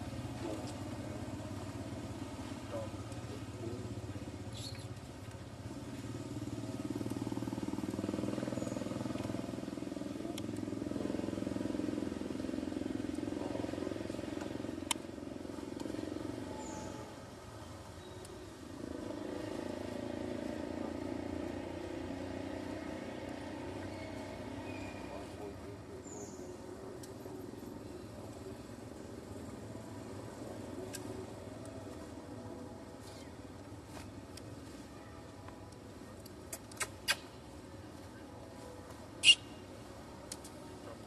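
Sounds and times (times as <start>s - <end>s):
engine noise: 0.0s - 17.5s.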